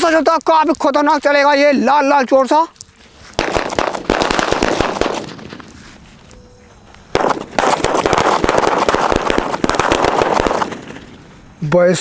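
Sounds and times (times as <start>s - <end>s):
firecrackers bursting: 3.0s - 6.3s, 7.0s - 11.6s.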